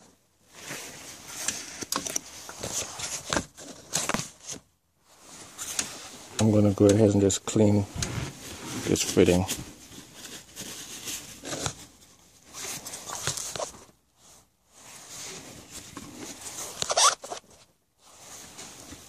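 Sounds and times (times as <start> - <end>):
towel rubbing hose fitting: 16.8 - 17.4.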